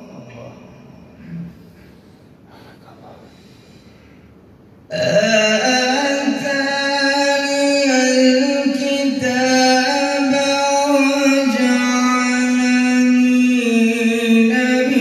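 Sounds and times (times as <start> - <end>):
man chanting into a microphone: 0.0 - 1.5, 4.9 - 15.0.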